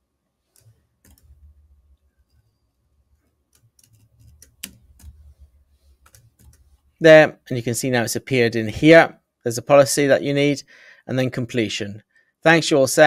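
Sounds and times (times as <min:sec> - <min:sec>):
faint keyboard typing: 0:00.5 - 0:02.5, 0:03.1 - 0:06.9.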